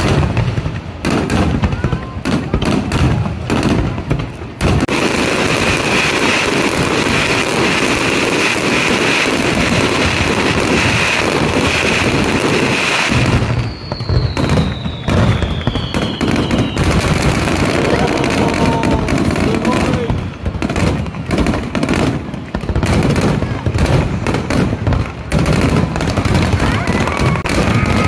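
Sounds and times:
fireworks bangs and crackling: 0:00.0 - 0:28.0
falling firework whistles: 0:04.8 - 0:20.2.

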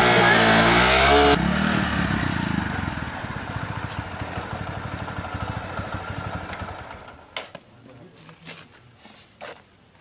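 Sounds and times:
motorcycle engine revving: 0:00.0 - 0:07.2.

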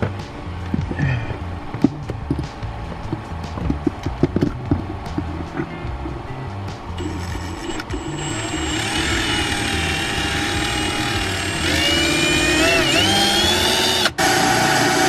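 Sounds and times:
cordless drill whining through metal: 0:07.0 - 0:15.0.

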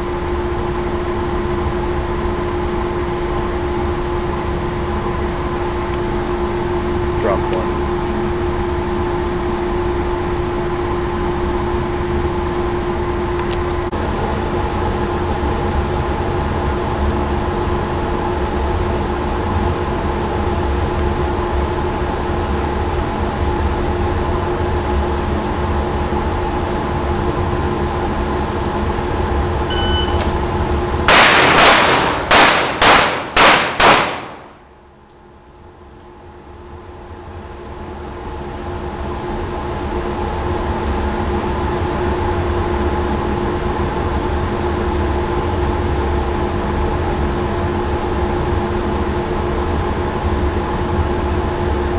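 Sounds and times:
ventilation hum: 0:00.0 - 0:51.9
shot timer beep: 0:29.7 - 0:30.3
pistol shots: 0:31.1 - 0:34.8.

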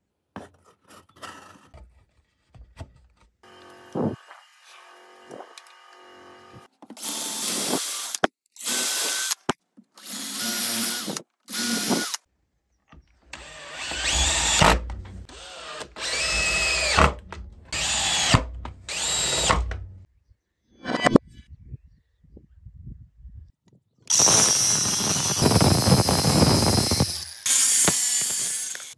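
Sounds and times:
power drill drilling through metal: 0:03.4 - 0:12.2, 0:13.4 - 0:19.8, 0:24.1 - 0:28.9
power drill driving screws: 0:03.4 - 0:12.3, 0:13.3 - 0:19.9, 0:24.1 - 0:28.9.

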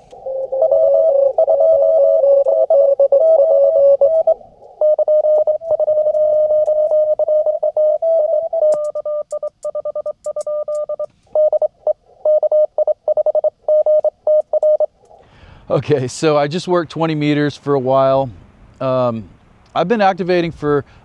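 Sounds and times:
morse code tone: 0:00.0 - 0:14.9.

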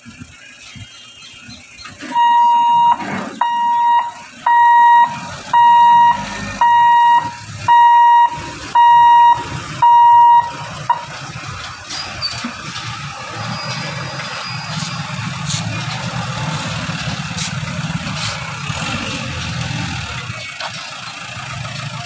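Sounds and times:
level crossing warning beeps: 0:02.1 - 0:11.2.

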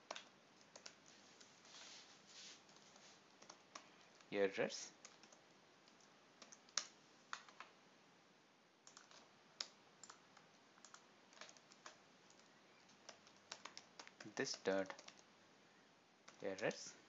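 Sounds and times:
computer keyboard keystrokes: 0:00.0 - 0:01.0, 0:03.4 - 0:04.3, 0:05.0 - 0:07.7, 0:08.8 - 0:15.2.

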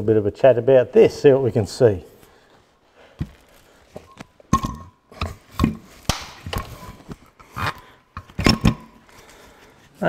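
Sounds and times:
knocks and clunks of metal part: 0:04.5 - 0:06.7, 0:08.2 - 0:09.0.

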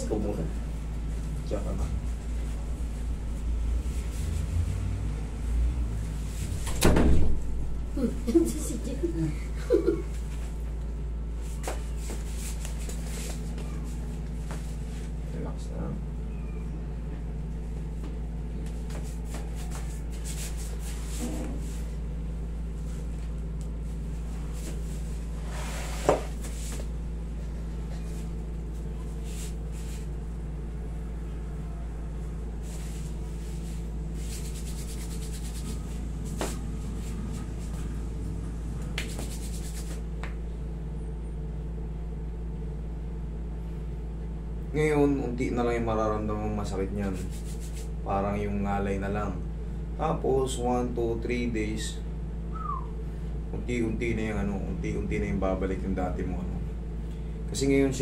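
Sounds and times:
low room hum: 0:00.0 - 0:58.0
hands rubbing hair and face: 0:11.4 - 0:15.2, 0:18.0 - 0:22.0, 0:22.8 - 0:30.2, 0:32.6 - 0:38.0, 0:38.8 - 0:40.4, 0:47.0 - 0:48.0.

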